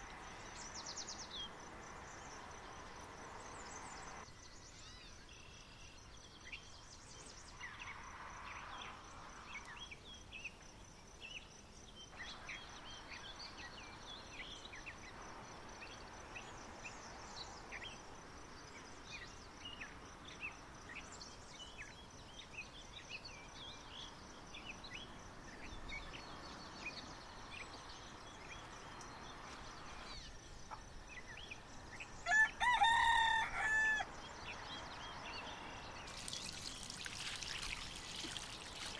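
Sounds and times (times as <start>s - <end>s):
faint outdoor hiss: 0.0s - 38.9s
rooster crowing: 32.2s - 34.2s
small birds chirping: 34.2s - 38.9s.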